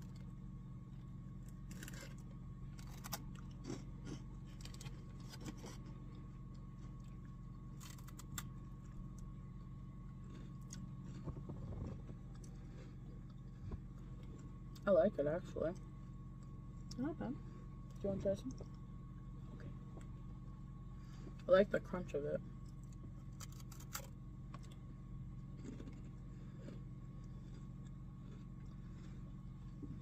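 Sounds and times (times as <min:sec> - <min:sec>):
steady low hum: 0:00.0 - 0:30.0
rice crackers crunching: 0:01.0 - 0:14.8, 0:22.6 - 0:30.0.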